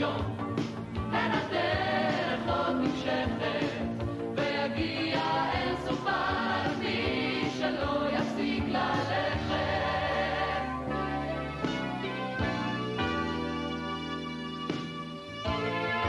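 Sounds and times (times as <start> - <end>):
choir singing in harmony: 0.0 - 0.4, 1.0 - 11.1.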